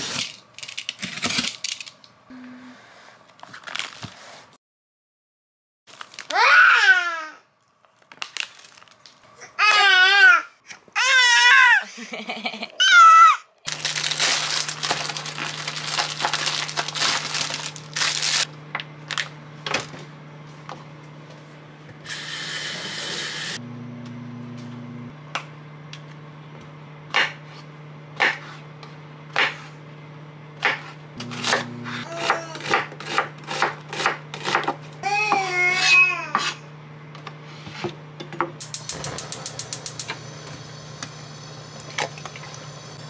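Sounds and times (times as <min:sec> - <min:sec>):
child calling out: 0:06.3 - 0:07.4, 0:12.8 - 0:13.5, 0:32.1 - 0:32.8, 0:35.0 - 0:36.4.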